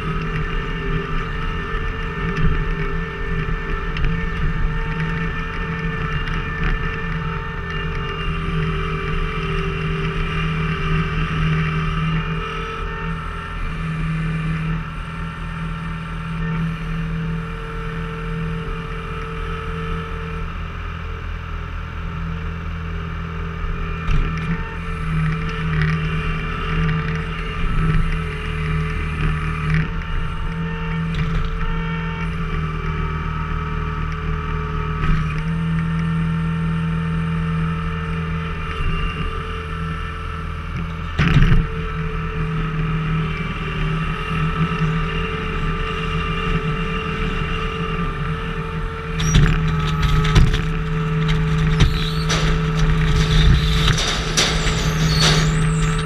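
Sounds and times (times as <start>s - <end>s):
diesel engine running: 47.2s - 56.0s
sharp knocks and cracks: 49.2s - 56.0s.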